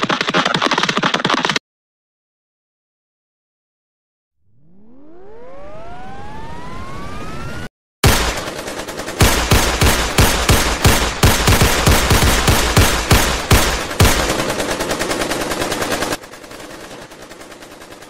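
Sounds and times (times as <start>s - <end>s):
rising whine: 4.4s - 7.7s
cartoon automatic gunfire: 8.0s - 18.0s.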